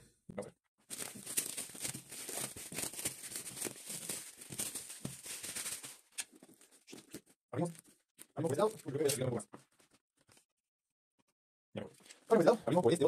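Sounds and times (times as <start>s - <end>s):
plastic wrapping crinkling: 0.9s - 9.2s.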